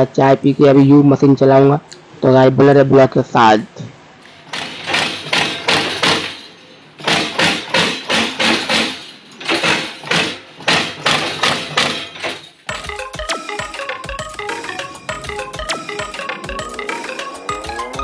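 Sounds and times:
crimping press striking: 4.2 - 12.9
music: 9.6 - 18.0.

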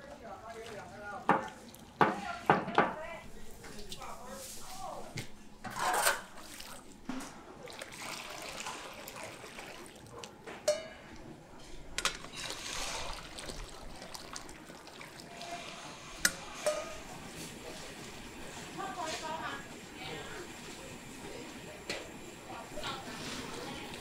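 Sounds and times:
liquid sloshing in a wok: 5.6 - 19.4
liquid pouring and splashing: 6.3 - 7.0, 7.6 - 10.4, 12.2 - 16.1.

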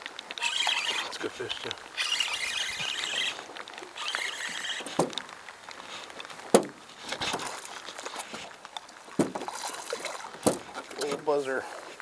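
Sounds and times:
fishing reel being cranked: 0.4 - 3.4, 4.0 - 4.9.

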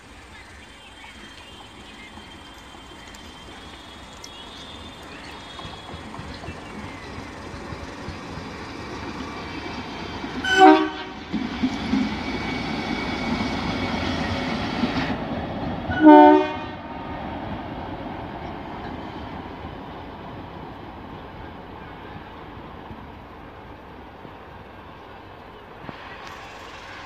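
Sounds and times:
diesel locomotive engine running: 0.0 - 27.0
train wheels on rails: 0.0 - 27.0
locomotive horn blasts: 10.4 - 11.3, 15.9 - 16.9.

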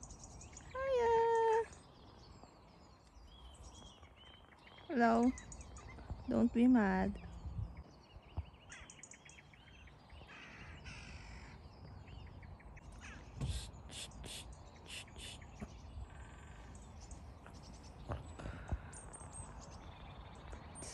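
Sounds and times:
birds chirping: 0.0 - 20.9
crows cawing: 10.2 - 11.6, 13.0 - 13.7.

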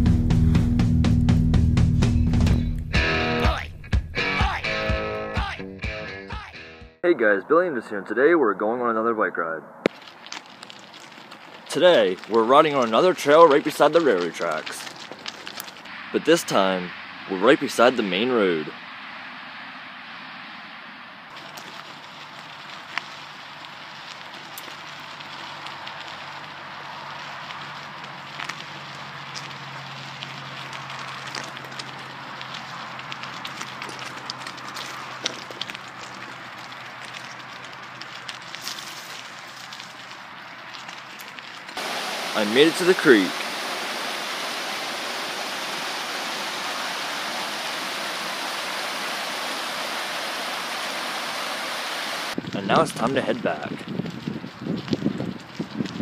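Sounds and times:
small stones clicking: 9.8 - 15.9, 21.3 - 41.8
bicycle tyres rolling on gravel: 9.8 - 20.6, 21.2 - 56.0.

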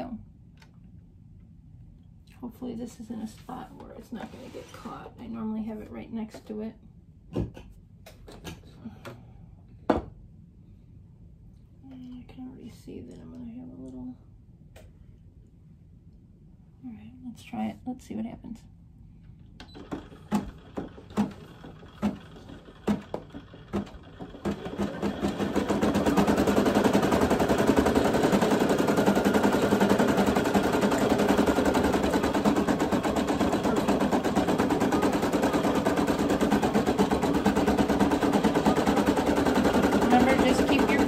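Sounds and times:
embroidery machine stitching: 19.6 - 41.0.

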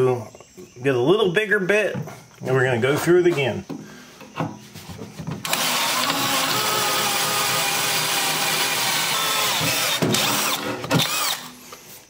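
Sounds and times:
cordless drill cutting metal: 5.4 - 11.8.

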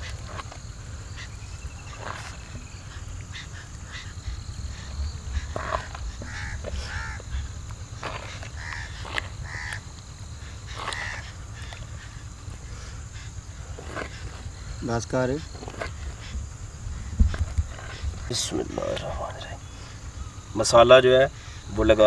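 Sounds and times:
low rumble: 0.0 - 14.8, 15.6 - 20.5
crow cawing: 2.8 - 18.9.

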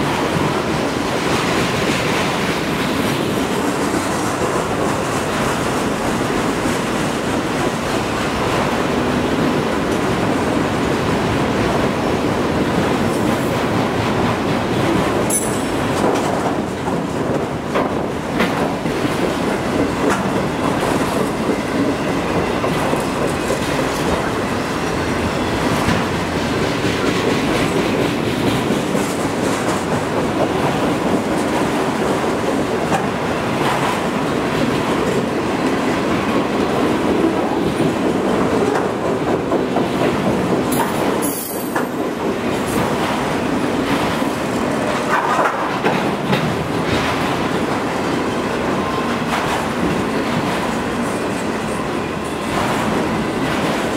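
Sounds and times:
freight train wheels rumbling: 0.0 - 53.9.

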